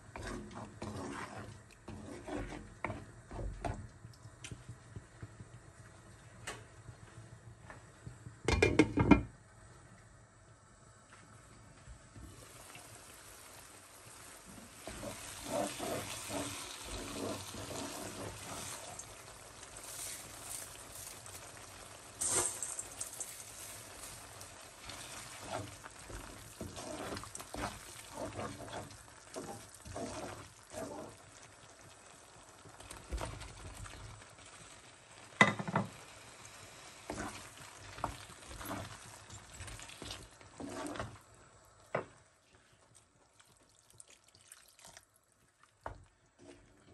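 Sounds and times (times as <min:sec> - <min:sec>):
spatula stirring and scraping: 0:00.0 - 0:03.9, 0:14.0 - 0:34.7, 0:36.7 - 0:41.4, 0:45.8 - 0:46.9
curry sizzling in a wok: 0:00.0 - 0:09.2, 0:12.1 - 0:46.9.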